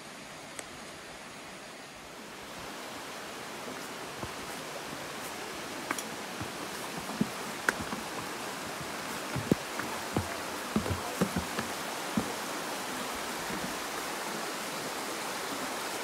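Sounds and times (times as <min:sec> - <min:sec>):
stream running over rocks: 0:00.0 - 0:16.0
footsteps on wooden planks: 0:03.5 - 0:13.9.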